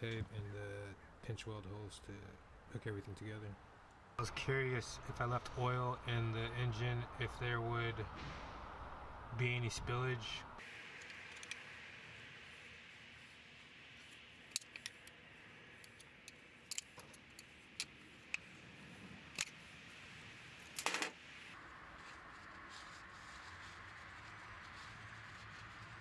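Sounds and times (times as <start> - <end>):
faint steady hiss: 0.0 - 26.0
tools and metal parts clinking: 15.9 - 17.9, 20.7 - 21.2.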